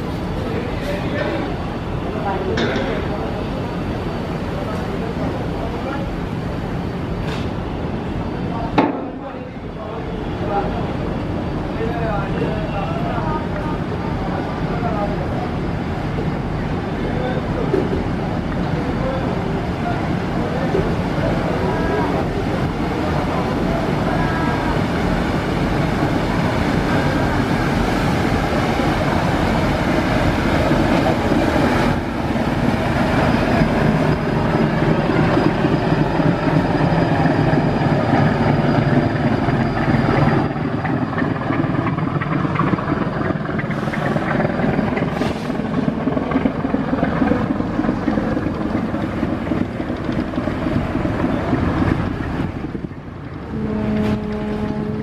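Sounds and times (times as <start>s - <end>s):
boat diesel engines running: 0.0s - 55.0s
water rushing along hull: 0.0s - 55.0s
steady low tone: 46.1s - 55.0s.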